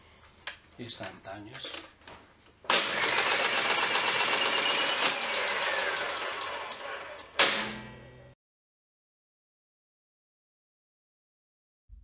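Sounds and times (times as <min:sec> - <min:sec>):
motor whirring drone: 0:03.0 - 0:07.4.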